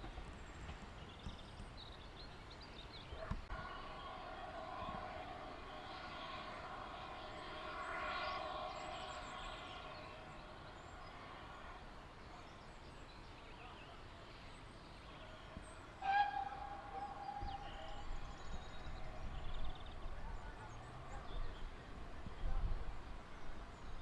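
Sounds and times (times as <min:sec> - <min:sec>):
steam locomotive whistle: 0:03.6 - 0:10.2, 0:15.9 - 0:18.4.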